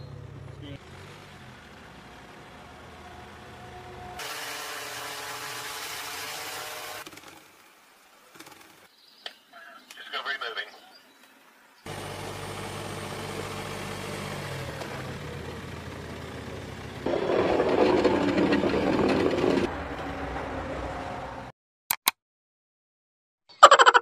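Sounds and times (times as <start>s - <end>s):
low train hum: 2.5s - 4.2s, 15.1s - 21.5s
train wheels rumbling and rattling: 14.8s - 20.8s.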